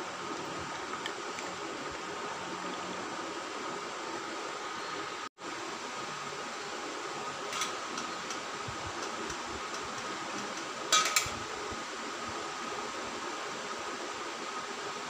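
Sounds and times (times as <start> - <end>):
steady background hum: 0.0 - 15.0.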